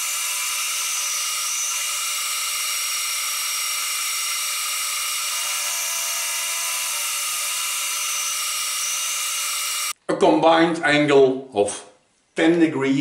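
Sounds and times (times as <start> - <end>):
milling machine cutting metal: 0.0 - 10.0.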